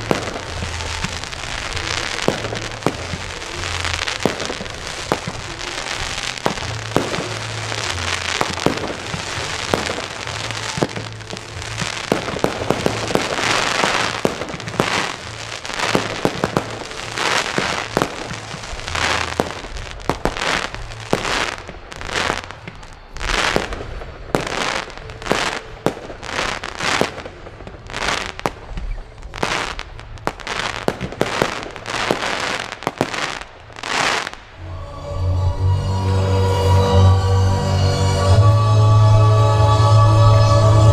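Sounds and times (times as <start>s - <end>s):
fireworks crackling and banging: 0.0s - 40.9s.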